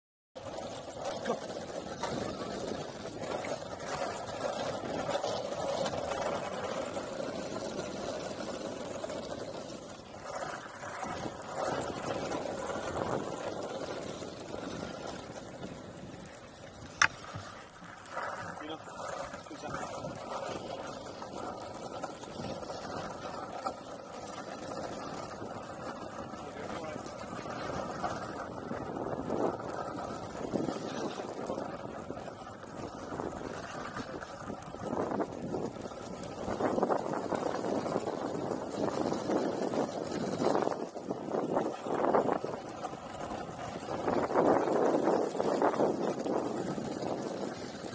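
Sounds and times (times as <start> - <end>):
longboard wheels rumbling on tarmac: 0.4 - 47.9
faint clacks: 16.9 - 18.1.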